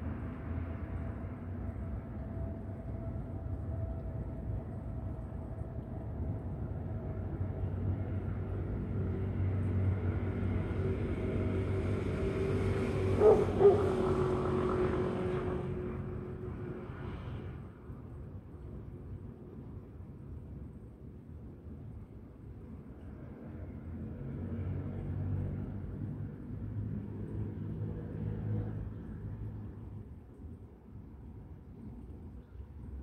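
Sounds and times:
passing engine rumble: 0.0s - 18.9s.

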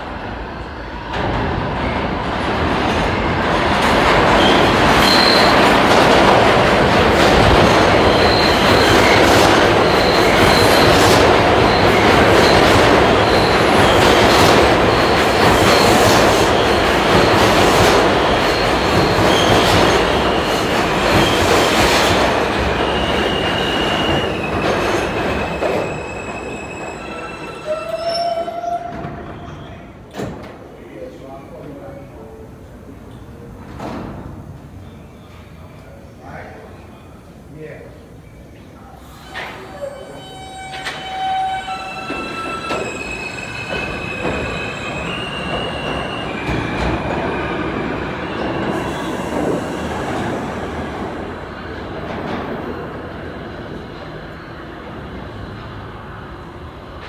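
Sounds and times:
subway train wheels rumbling: 0.0s - 57.0s
train high tones: 7.7s - 21.8s, 22.6s - 30.0s, 38.7s - 50.6s.

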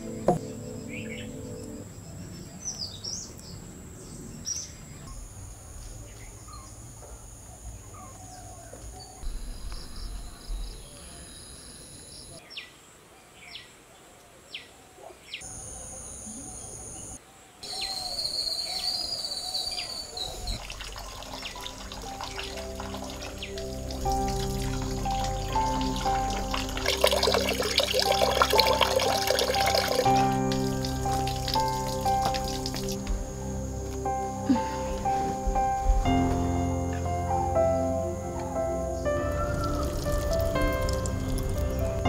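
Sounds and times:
birds chirping: 0.0s - 12.7s, 14.5s - 36.3s, 37.0s - 42.0s
high-pitched insect drone: 20.6s - 36.0s.

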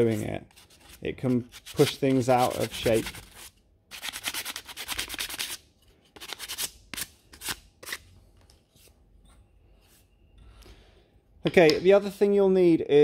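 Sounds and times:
sandpaper rubbing on wood: 0.0s - 5.6s.

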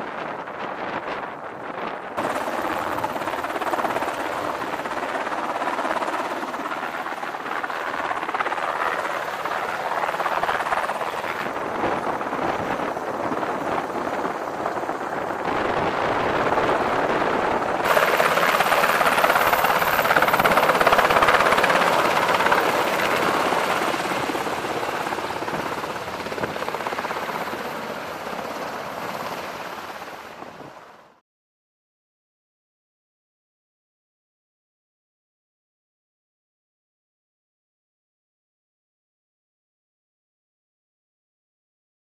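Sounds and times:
helicopter rotor and engines: 0.0s - 31.2s.

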